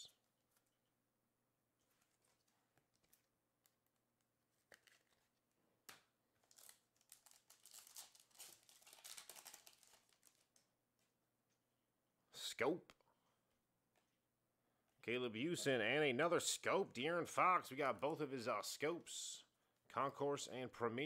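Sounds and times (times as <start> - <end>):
foil wrapper crinkling: 4.6 - 5.5, 6.3 - 10.7.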